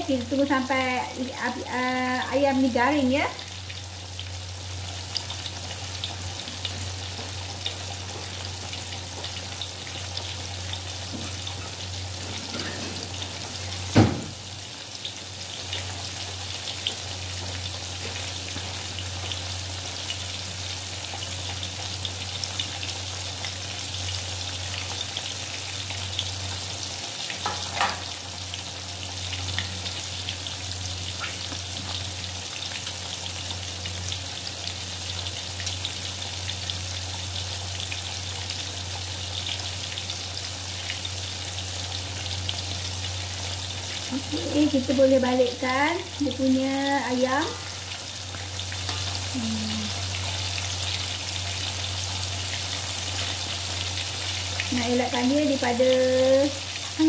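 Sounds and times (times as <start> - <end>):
chicken deep-frying in oil: 0.0 - 57.0
loud thump: 13.9 - 14.4.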